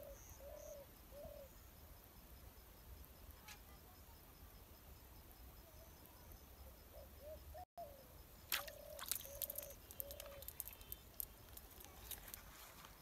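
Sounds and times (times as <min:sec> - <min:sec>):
dove cooing: 0:06.9 - 0:08.0, 0:08.7 - 0:10.9
sharp clicks and crackles: 0:09.0 - 0:13.0.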